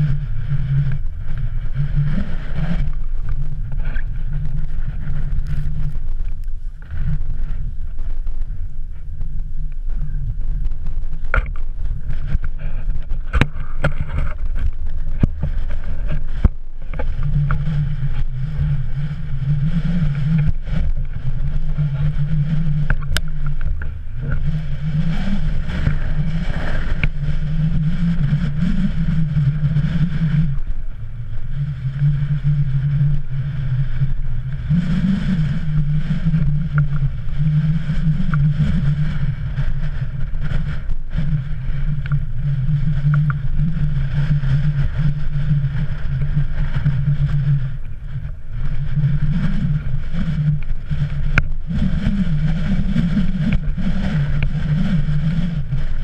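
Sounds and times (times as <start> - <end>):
wind buffeting microphone: 0.0 - 56.0
faint clicks: 22.4 - 24.4.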